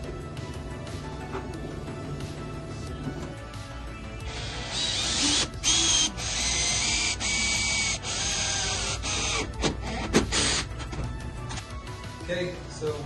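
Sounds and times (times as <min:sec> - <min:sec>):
background music: 0:00.0 - 0:13.0
drill grinding into steel: 0:04.2 - 0:10.7.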